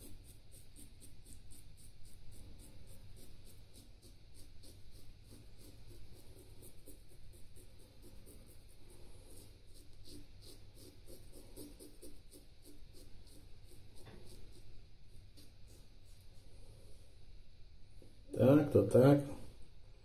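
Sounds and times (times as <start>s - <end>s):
razor scraping stubble: 0.0s - 14.8s
low steady hum: 0.0s - 20.0s.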